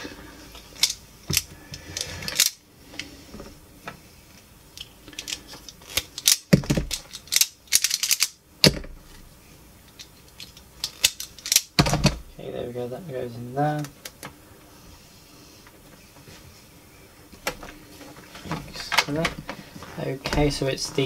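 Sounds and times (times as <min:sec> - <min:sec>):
wire strippers clicking: 0:09.9 - 0:12.2.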